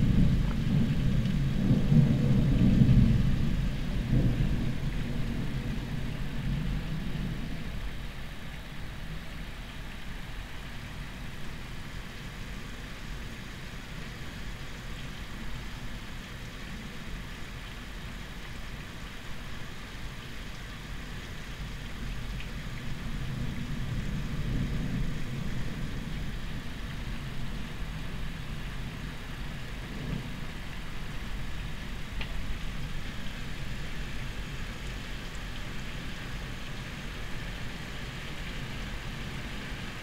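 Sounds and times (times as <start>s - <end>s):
distant thunder rumble: 0.0s - 7.4s
steady rain: 0.0s - 40.0s.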